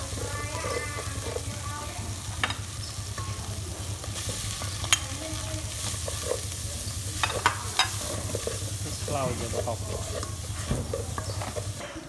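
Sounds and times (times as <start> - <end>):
paste sizzling in oil: 0.0 - 11.8
metal spoon clinking on pot: 2.4 - 3.5, 4.2 - 5.2, 7.2 - 8.7, 9.8 - 11.8.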